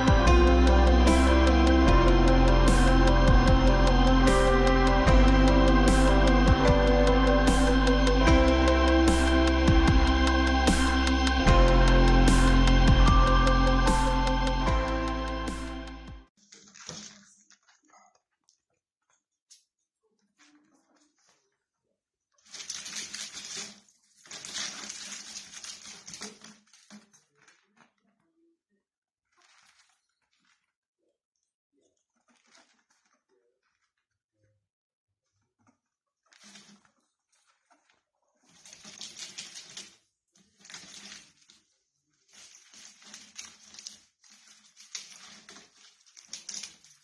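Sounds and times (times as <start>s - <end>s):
ferrets scrabbling in play tube: 16.4s - 18.4s, 22.4s - 28.2s, 29.3s - 30.8s, 32.2s - 34.1s, 35.4s - 47.0s
fabric tunnel rustling: 22.4s - 27.7s, 36.3s - 47.0s.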